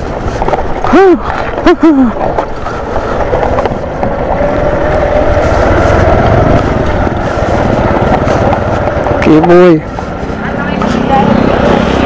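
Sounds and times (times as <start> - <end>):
small motorcycle engine running: 2.9 - 12.0.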